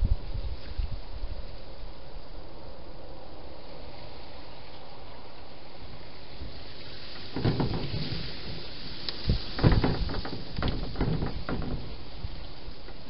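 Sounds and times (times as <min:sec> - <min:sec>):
steady hiss: 0:00.0 - 0:13.0
knocks and rustles: 0:06.4 - 0:13.0.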